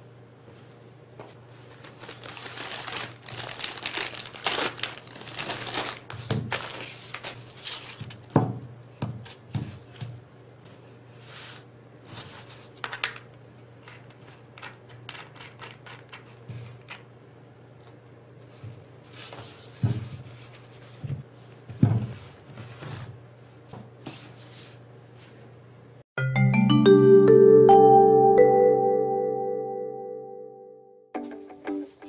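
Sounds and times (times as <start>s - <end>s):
plastic bag crinkling: 1.6s - 8.3s.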